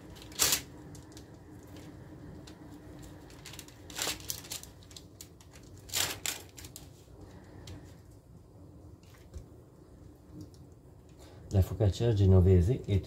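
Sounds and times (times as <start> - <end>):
paper crinkling: 0.0 - 7.1
parchment paper rustling: 0.0 - 7.9.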